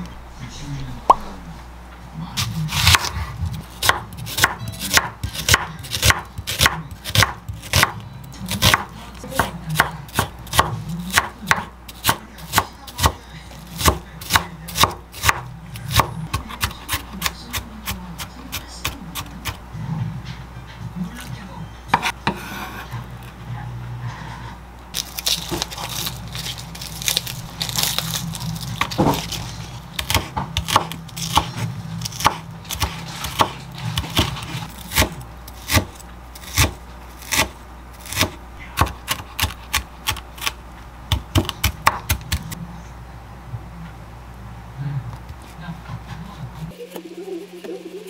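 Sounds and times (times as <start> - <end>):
low hum: 0.0 - 4.8, 42.1 - 48.0
knife chopping on wooden board: 2.7 - 3.1, 3.8 - 19.6, 21.9 - 22.8, 28.8 - 42.5.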